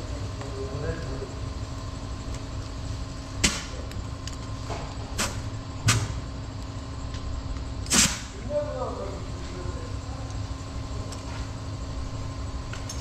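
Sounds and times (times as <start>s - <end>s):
steady low hum: 0.0s - 13.0s
air hose hissing: 7.9s - 8.3s.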